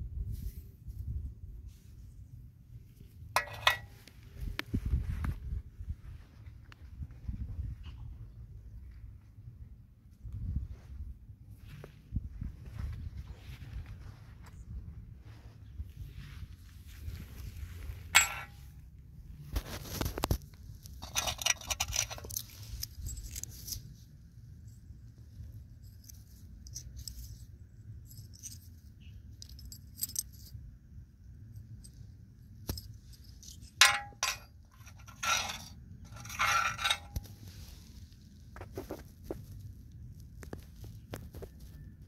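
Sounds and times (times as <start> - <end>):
coins clinking: 18.2 - 18.5
scraping and rubbing coins: 21.0 - 24.0, 33.1 - 37.6.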